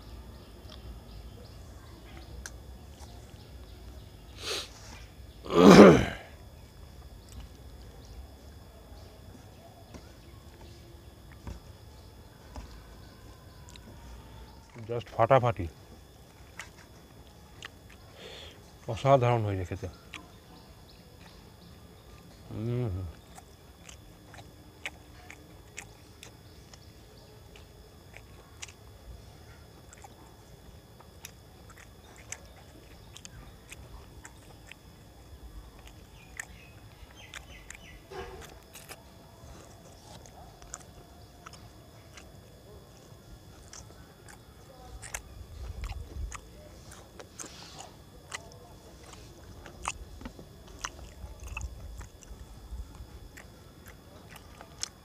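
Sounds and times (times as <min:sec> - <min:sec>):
man chewing food: 0:00.0 - 0:55.0
wet mouth clicks and smacks: 0:23.2 - 0:26.9, 0:29.8 - 0:30.2, 0:31.0 - 0:34.8, 0:35.8 - 0:39.0, 0:39.8 - 0:42.3, 0:43.6 - 0:55.0.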